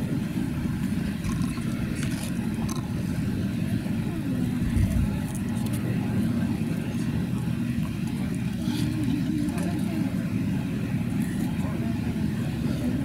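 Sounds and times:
faint voices murmuring: 0.0s - 13.0s
road traffic rumble: 0.0s - 13.0s.

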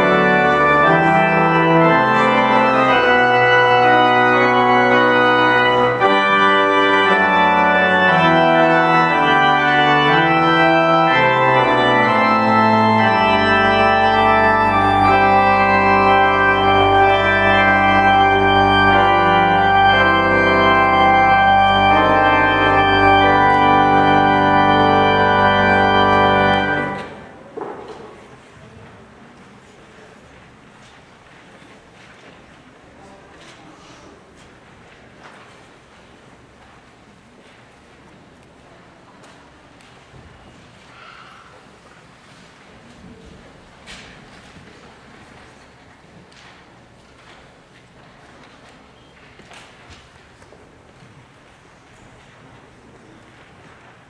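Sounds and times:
low organ bass note: 0.0s - 27.3s
church organ chords: 0.0s - 27.5s.

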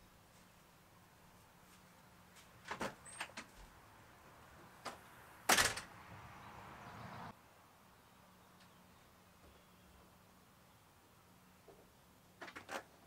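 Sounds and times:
door shutting with a clack: 5.5s - 5.9s.

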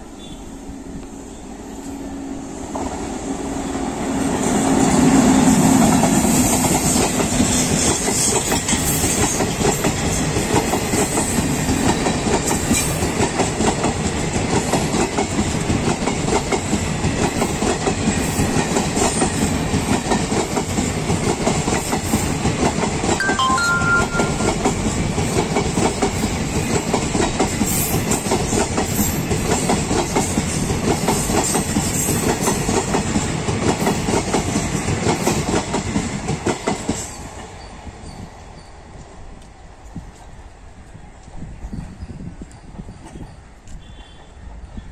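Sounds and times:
train wheels clattering over rail joints: 5.8s - 23.0s, 25.1s - 37.3s.

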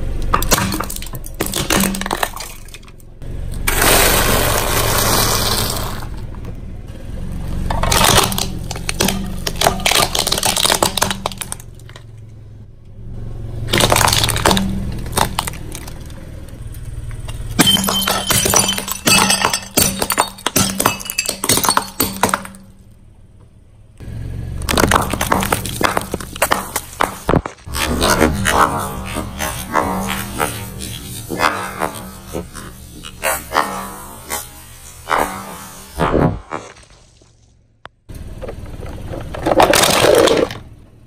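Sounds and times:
tyre crushing brittle objects: 0.3s - 3.0s, 7.7s - 12.1s, 13.7s - 16.2s, 17.3s - 22.7s, 24.6s - 37.6s, 38.4s - 40.7s
ceramic plates shattering: 17.6s - 22.6s.

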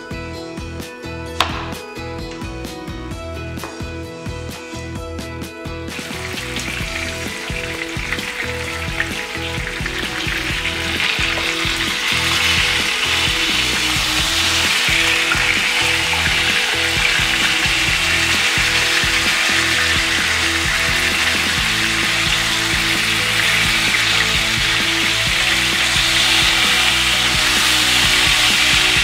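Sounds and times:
background music: 0.0s - 29.0s
fish sizzling in hot oil: 5.9s - 29.0s.

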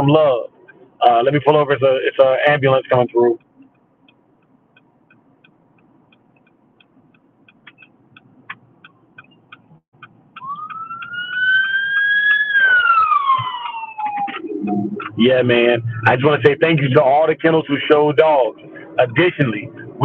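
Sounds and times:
car indicator ticking: 0.1s - 19.8s
ambulance siren wailing: 10.4s - 20.0s.

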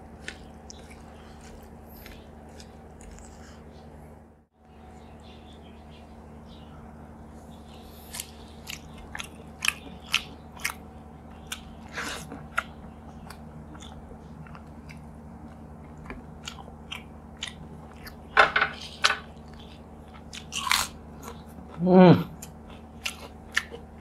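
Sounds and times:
chewing with mouth clicks: 0.2s - 3.6s, 8.0s - 18.2s, 19.3s - 24.0s.

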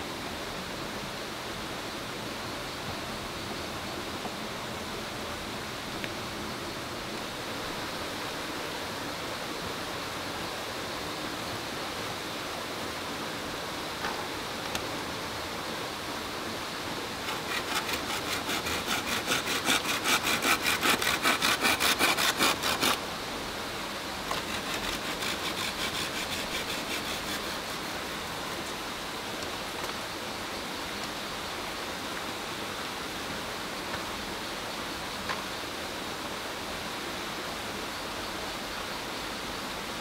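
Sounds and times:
creek rushing: 0.1s - 40.0s
hand saw cutting bamboo: 17.2s - 23.0s, 24.3s - 28.4s.

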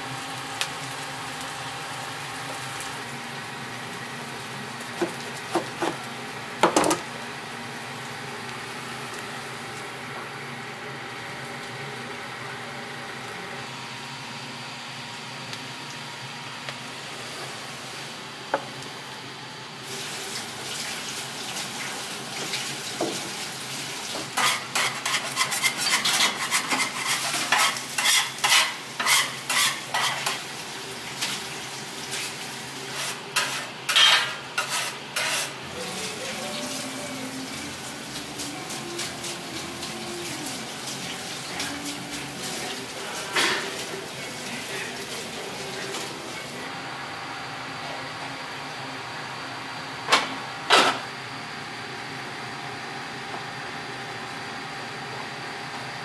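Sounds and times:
frying sizzle: 0.0s - 56.0s
kitchen hum: 0.0s - 56.0s
dishes and utensils clattering: 33.4s - 35.5s, 43.2s - 43.9s.

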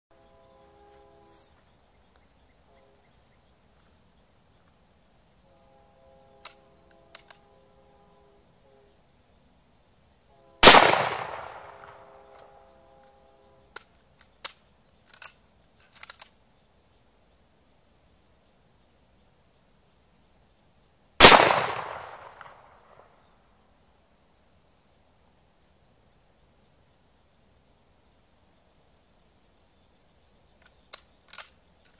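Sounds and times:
sharp cracks and pops: 6.4s - 7.4s, 10.6s - 12.5s, 13.7s - 16.4s, 21.2s - 23.0s, 30.6s - 31.9s.

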